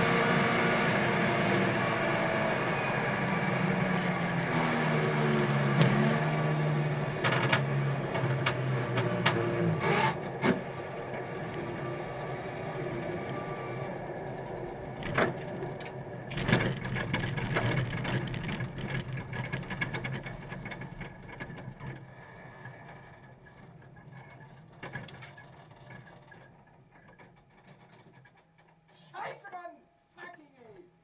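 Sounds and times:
car engine running at low speed: 0.0s - 24.2s
clicks and rattles inside car: 15.0s - 22.0s.

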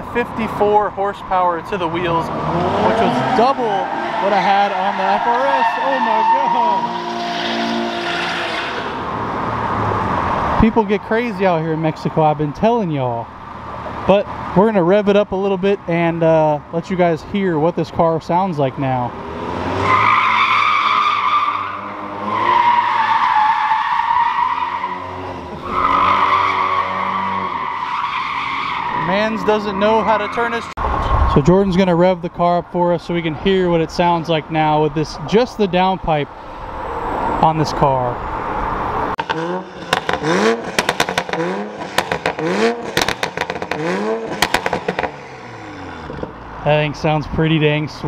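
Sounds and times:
car engine revving: 0.0s - 12.6s, 19.0s - 32.3s, 36.2s - 47.8s
tyres squealing: 1.1s - 9.0s, 19.8s - 30.8s
exhaust crackles and pops: 39.2s - 46.4s.

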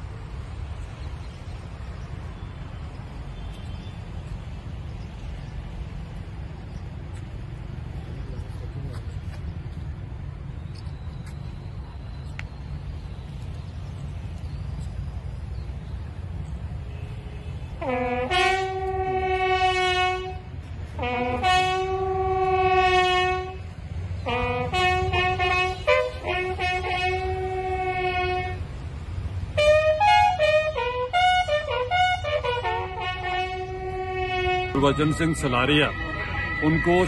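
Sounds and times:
bugle call: 29.6s - 37.0s.

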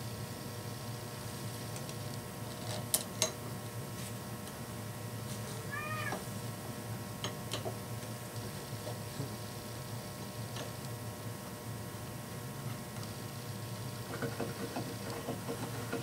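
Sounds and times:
steady low hum: 0.0s - 16.0s
cat meowing: 5.5s - 6.2s.

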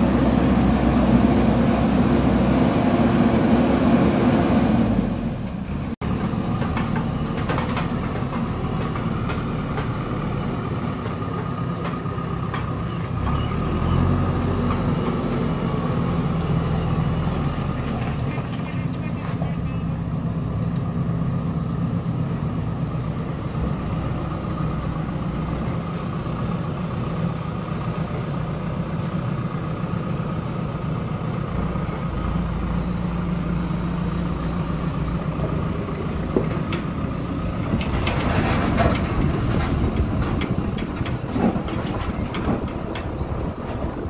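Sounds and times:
diesel engine running: 0.0s - 44.0s
clattering and scraping: 35.4s - 44.0s.

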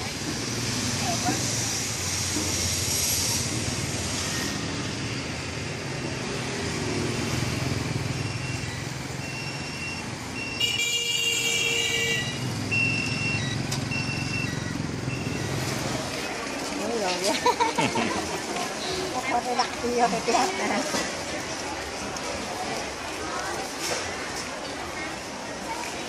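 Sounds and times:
street traffic: 0.0s - 26.0s
short high beeps: 8.1s - 10.8s, 12.1s - 15.7s.

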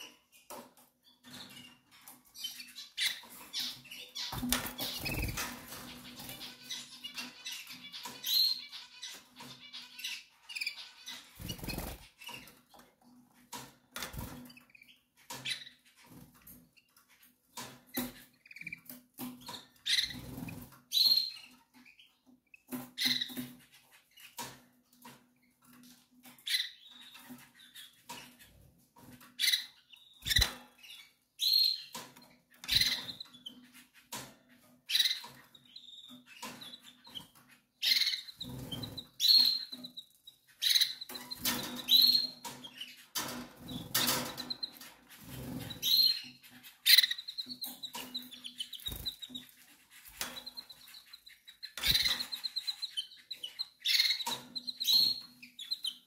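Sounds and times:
canary chirping: 0.0s - 56.0s
wing fluttering: 4.3s - 6.0s, 11.3s - 12.4s.

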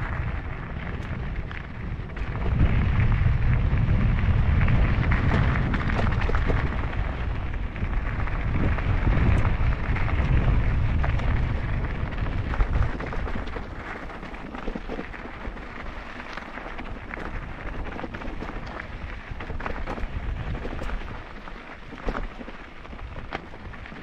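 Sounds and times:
bike clicks and rattles: 0.0s - 24.0s
wind buffeting microphone: 0.0s - 24.0s.

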